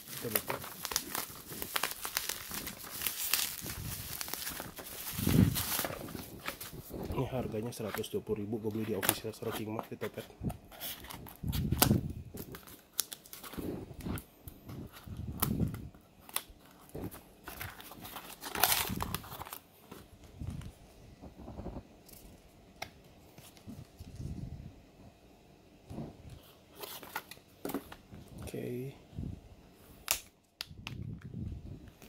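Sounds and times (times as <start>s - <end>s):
cardboard rustling and crinkling: 0.0s - 21.8s.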